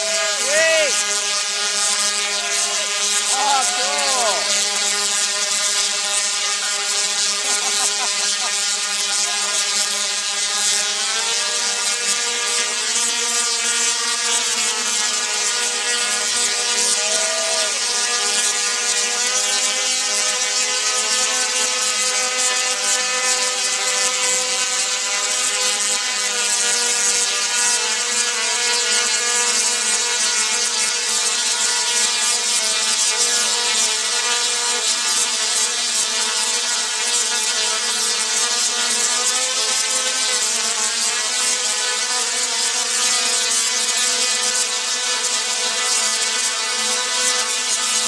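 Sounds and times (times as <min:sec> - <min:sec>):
tesla coil arcs crackling: 0:00.0 - 0:12.5
quadcopter rotor whine: 0:00.0 - 0:48.0.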